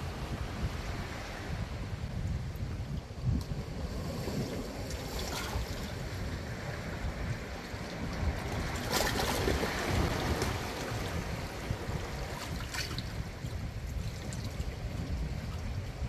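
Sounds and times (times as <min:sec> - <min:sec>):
waves splashing against rocks: 0:03.2 - 0:16.0.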